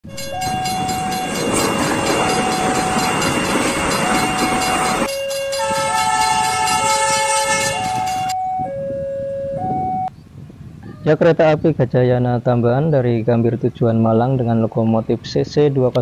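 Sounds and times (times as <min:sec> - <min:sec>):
train passing: 0:00.0 - 0:08.8
steady higher tones: 0:00.0 - 0:10.1.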